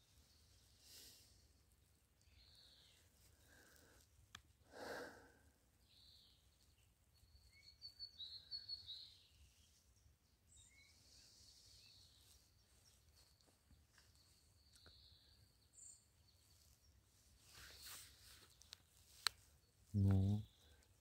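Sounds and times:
songbird chirping and warbling: 5.8s - 20.8s.

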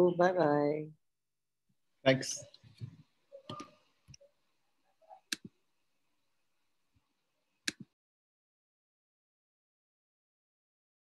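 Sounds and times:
sharp clicks: 5.3s - 5.5s, 7.6s - 7.9s.

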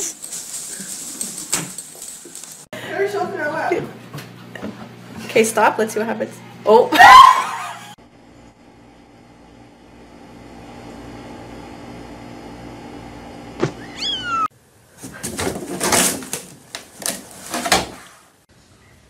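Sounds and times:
kitten mewing: 13.7s - 14.5s
cat scrabbling in a hamper: 15.0s - 18.1s.

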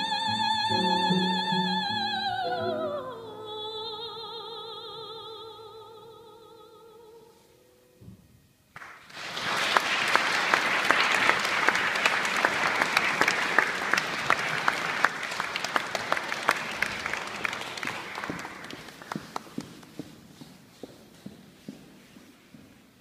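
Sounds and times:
audience applauding: 8.8s - 20.0s.

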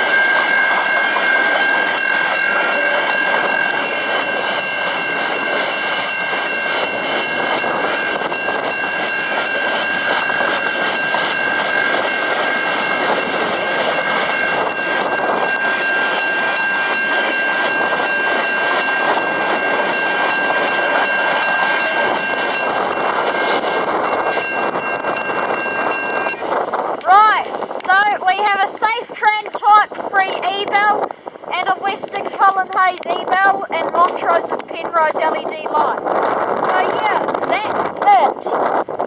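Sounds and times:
level crossing electronic bells: 0.0s - 26.4s
train wheels on rails: 0.0s - 39.0s.

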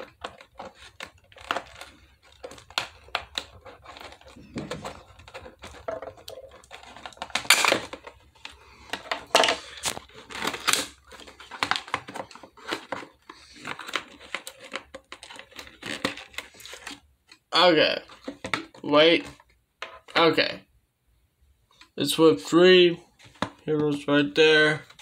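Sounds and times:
plastic packaging crinkling: 0.0s - 17.1s.

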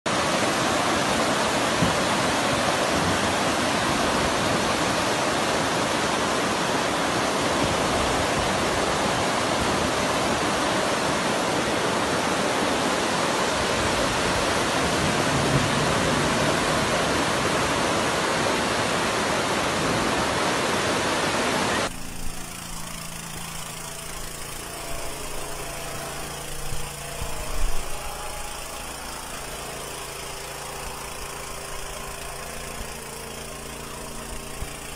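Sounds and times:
floodwater rushing roar: 0.1s - 34.9s
low steady hum: 21.6s - 34.9s.

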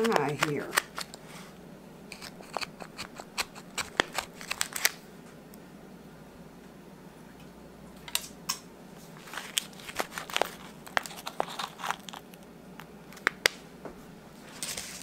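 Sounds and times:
foil pan crinkling: 0.0s - 1.2s, 2.2s - 5.0s, 9.2s - 12.4s
spatula clicking and scraping: 0.0s - 1.2s, 2.1s - 4.9s.

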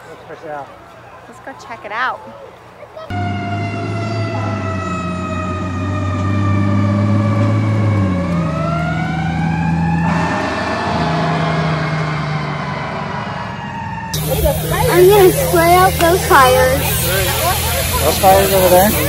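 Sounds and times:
fire truck siren wailing: 3.1s - 19.0s
low hum: 6.8s - 19.0s
hiss: 14.2s - 19.0s.

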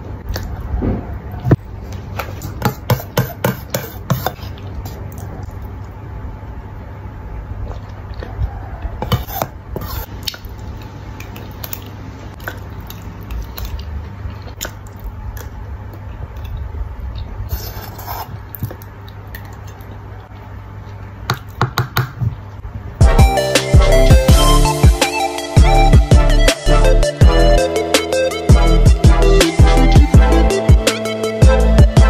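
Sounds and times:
metal spoon scraping a pot: 9.0s - 10.1s
loud music: 23.0s - 32.0s.

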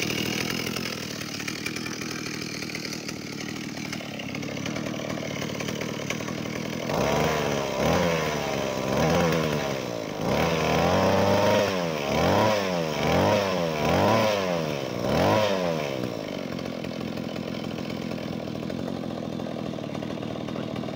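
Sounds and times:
brush cutter engine revving: 0.0s - 20.9s.

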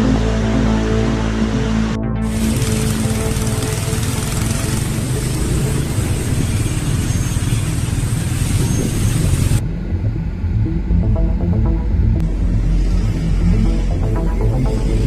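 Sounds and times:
vehicle road and wind noise: 0.0s - 15.0s.

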